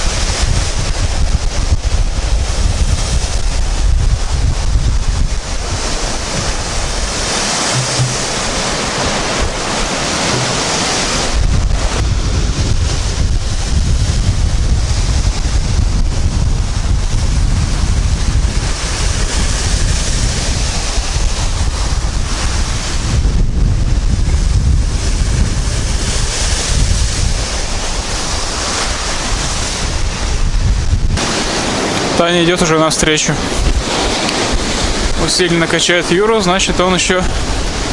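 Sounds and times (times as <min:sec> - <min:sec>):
surf breaking: 0:00.0 - 0:37.9
wind buffeting microphone: 0:00.0 - 0:37.9.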